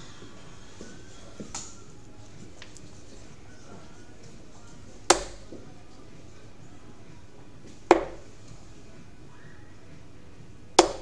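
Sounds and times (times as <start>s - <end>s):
darts thudding into dartboard: 5.0s - 5.6s, 7.6s - 8.4s, 10.7s - 11.0s.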